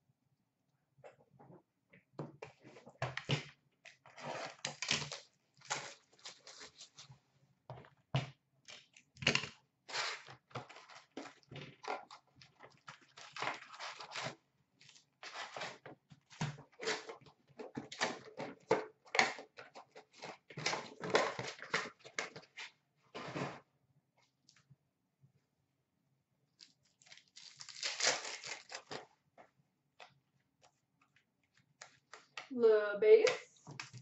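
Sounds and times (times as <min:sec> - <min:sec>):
cardboard tearing: 0:04.1 - 0:07.0, 0:27.0 - 0:29.1
foil packs crinkling: 0:26.6 - 0:29.1.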